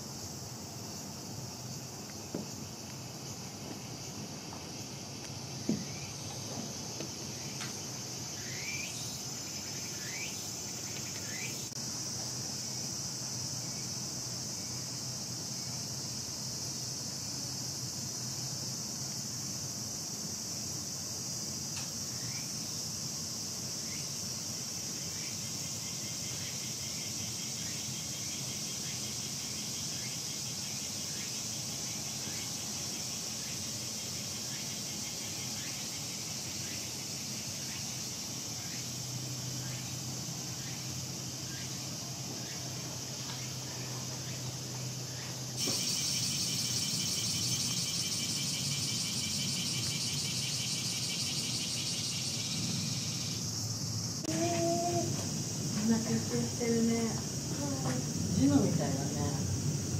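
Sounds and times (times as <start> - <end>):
cicada chorus drone: 0.0 - 59.9.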